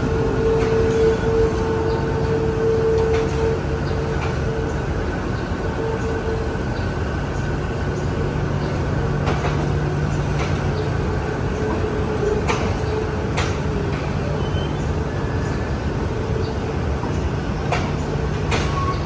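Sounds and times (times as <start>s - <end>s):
train coaches rumbling past: 0.0s - 19.0s
train wheels clicking: 8.7s - 19.0s.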